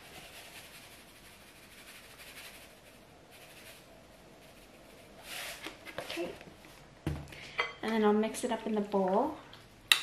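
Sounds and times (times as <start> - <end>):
salt grains pouring: 0.0 - 5.6.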